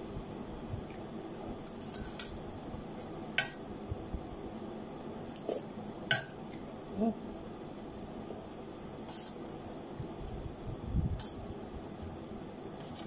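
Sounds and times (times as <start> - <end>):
cutlery clinking on metal bowl: 1.8 - 2.3.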